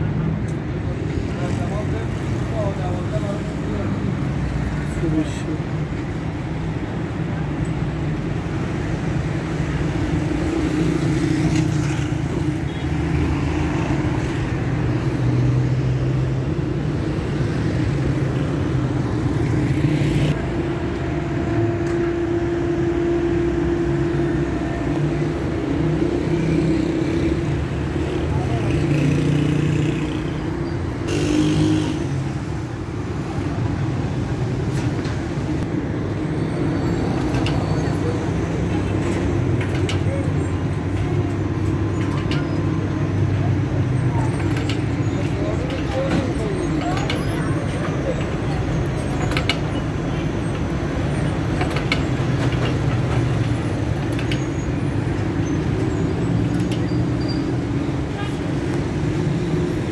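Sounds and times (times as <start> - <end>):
passing cars rumbling: 0.0 - 59.9
voices of passers-by: 0.0 - 59.9
sharp clicks and knocks: 45.6 - 57.1.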